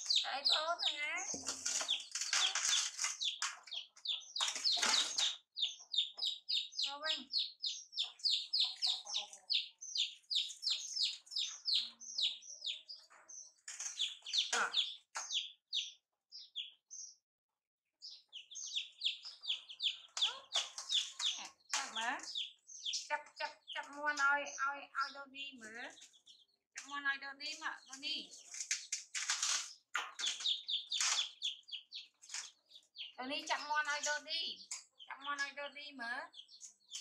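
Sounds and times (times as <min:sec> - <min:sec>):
baby monkeys squealing: 0:00.0 - 0:13.1
chicks peeping: 0:00.0 - 0:17.2, 0:18.0 - 0:37.0.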